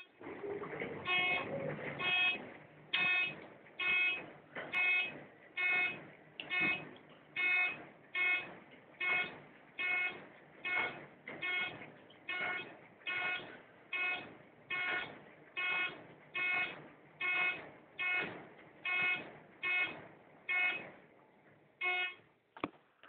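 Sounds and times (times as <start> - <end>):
elevator floor beep: 1.0 - 20.9, 21.8 - 22.3.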